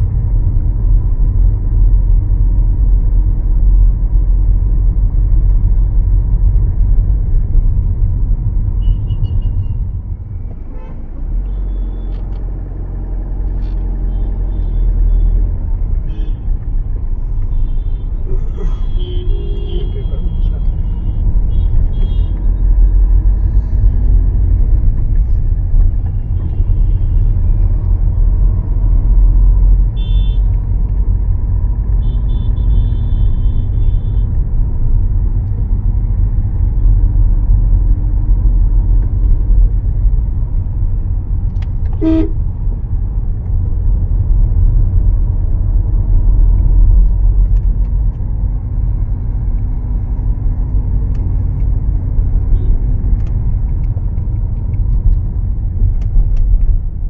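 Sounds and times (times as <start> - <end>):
rumble of vehicles: 0.0 - 57.0
car horn toots: 17.5 - 22.4, 41.9 - 42.4.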